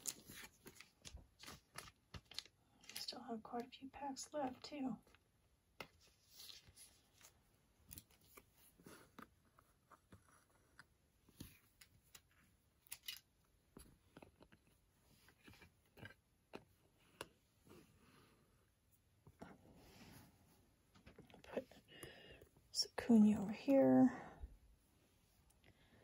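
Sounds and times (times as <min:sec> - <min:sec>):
trading cards being handled: 0:00.0 - 0:03.8, 0:05.8 - 0:17.8.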